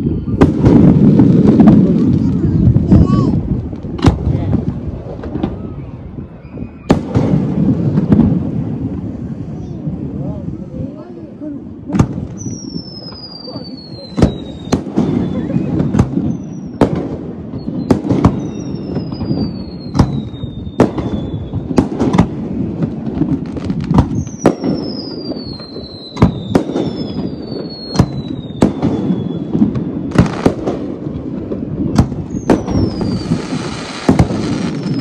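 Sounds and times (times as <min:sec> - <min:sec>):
falling firework whistles: 0:00.0 - 0:01.1, 0:05.3 - 0:07.5, 0:12.3 - 0:22.0, 0:23.9 - 0:30.7, 0:32.0 - 0:35.0
fireworks bangs: 0:00.0 - 0:35.0
firework hissing burst: 0:32.1 - 0:35.0.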